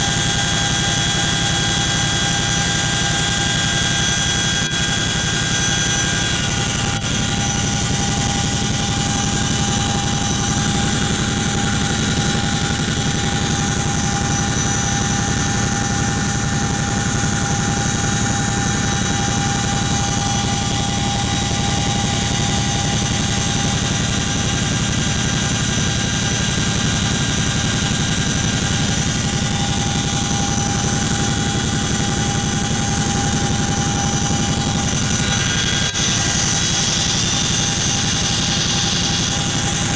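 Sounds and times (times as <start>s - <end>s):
high engine whine: 0.0s - 39.9s
helicopter cabin rumble: 4.1s - 22.8s, 27.8s - 38.6s.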